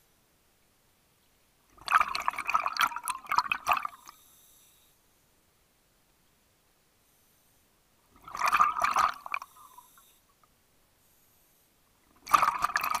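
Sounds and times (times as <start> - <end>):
underwater regulator bubbles: 1.8 - 4.1, 8.2 - 9.9, 12.1 - 13.0.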